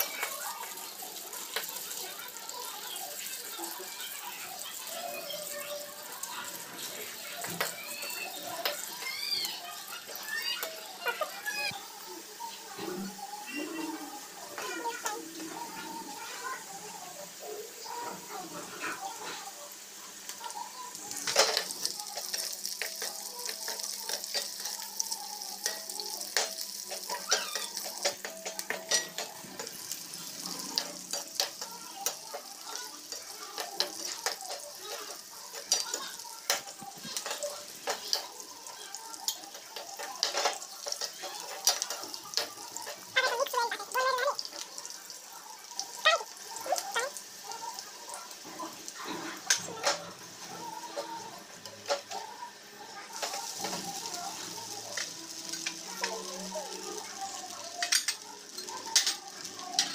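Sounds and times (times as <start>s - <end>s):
potatoes sizzling in oil: 0.0s - 59.9s
spoon scraping a pan: 21.2s - 44.7s, 53.1s - 59.9s.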